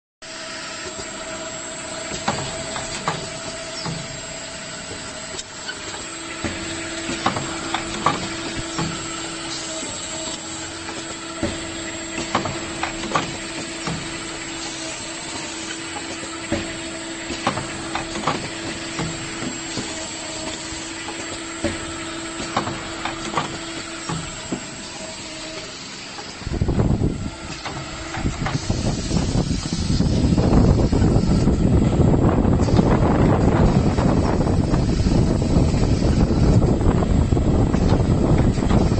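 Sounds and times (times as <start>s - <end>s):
machine humming: 0.2s - 38.9s
machine clacks and knocks: 6.4s - 9.8s, 10.8s - 14.7s, 15.8s - 24.7s.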